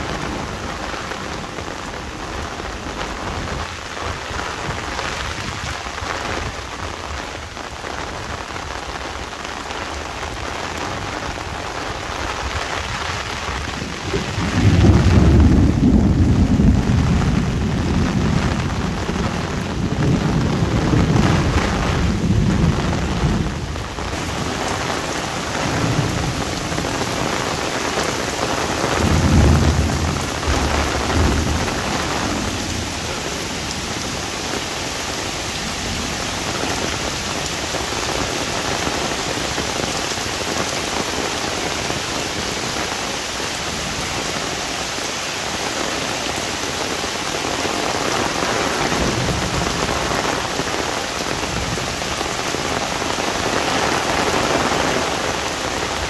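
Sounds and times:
heavy rain on umbrella: 0.0s - 56.0s
thunder rumbling: 11.1s - 42.9s, 47.4s - 56.0s.

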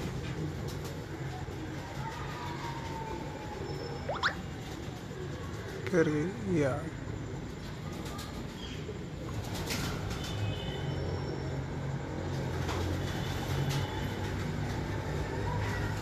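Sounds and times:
pigeons cooing: 0.0s - 5.8s
short high chirps: 4.1s - 4.4s.

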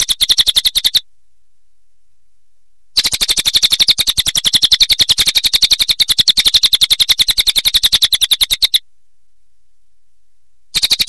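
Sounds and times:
jay calling in a fast rattle: 0.0s - 1.0s, 3.0s - 8.8s, 10.7s - 11.0s.

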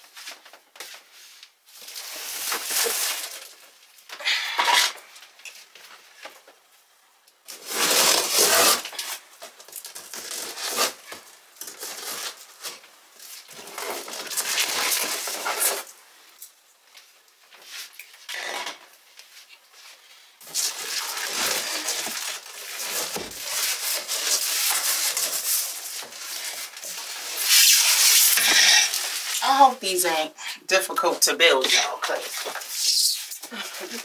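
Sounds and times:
cardboard and packing rustling: 0.0s - 6.7s, 7.5s - 29.8s, 32.0s - 34.0s
packing tape tearing: 1.8s - 3.6s, 7.5s - 12.8s, 13.4s - 15.9s, 20.4s - 29.4s.

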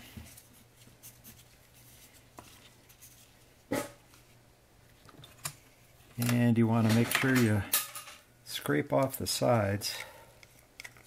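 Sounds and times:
handling plastic cups: 9.8s - 11.0s.

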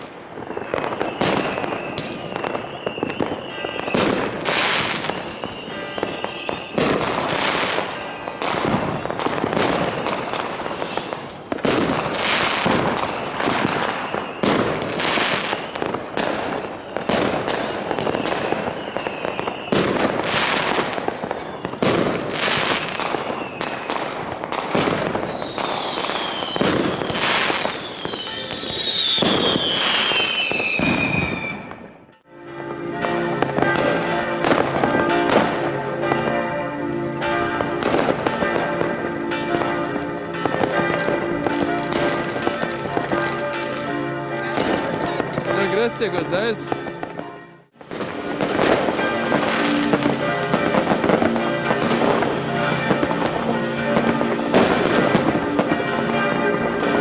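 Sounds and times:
whistling rockets: 0.0s - 32.1s
fireworks bangs and crackling: 0.0s - 57.0s
high steady whistle: 0.4s - 6.9s, 7.6s - 9.3s, 13.0s - 16.0s, 16.6s - 19.9s, 21.2s - 21.8s, 23.2s - 24.0s, 25.0s - 31.9s.

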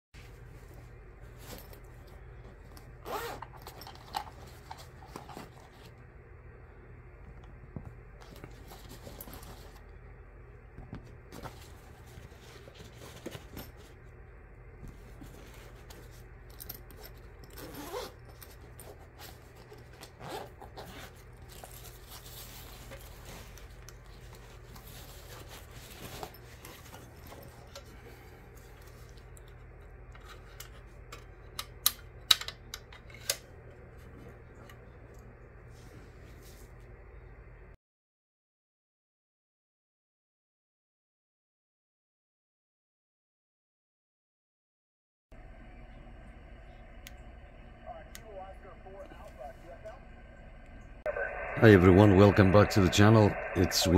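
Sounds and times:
zipper: 3.0s - 4.1s, 17.0s - 19.3s, 19.9s - 23.3s
bag rustling: 14.9s - 27.8s.

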